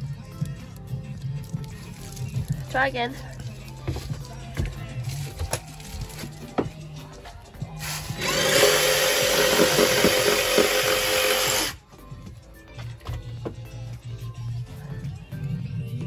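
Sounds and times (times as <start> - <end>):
handheld power tool running: 7.8 - 11.8.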